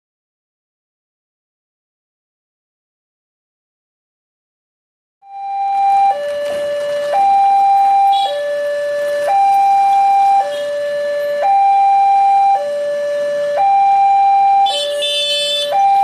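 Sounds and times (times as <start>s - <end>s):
two-tone level crossing alarm: 5.2s - 16.0s.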